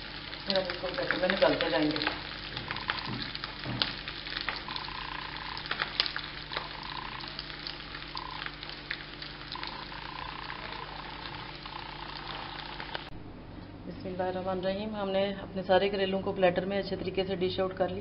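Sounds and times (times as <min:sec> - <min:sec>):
food sizzling in oil: 0:00.0 - 0:13.1
oil popping: 0:00.0 - 0:13.1.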